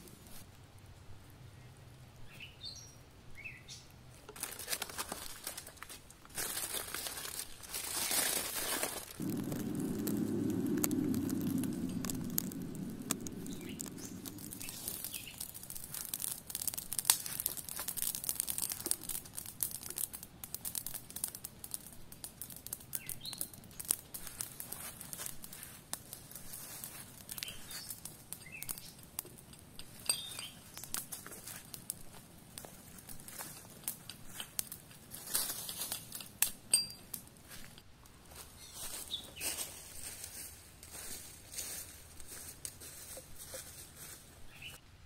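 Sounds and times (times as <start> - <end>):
campfire crackling and popping: 3.3 - 38.2
low rumble: 9.0 - 16.0.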